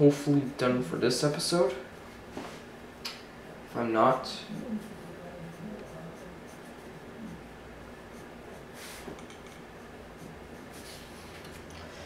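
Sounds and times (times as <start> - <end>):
pen scratching on paper: 4.4 - 7.4.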